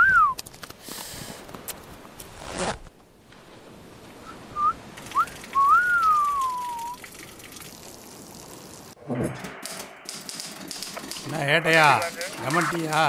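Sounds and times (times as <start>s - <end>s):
man whistling: 0.0s - 0.4s, 4.3s - 7.0s.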